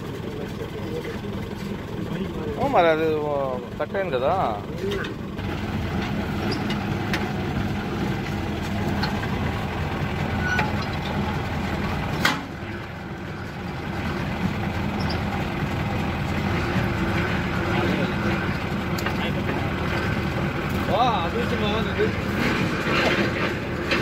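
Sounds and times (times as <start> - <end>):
rig engine running: 0.0 - 24.0.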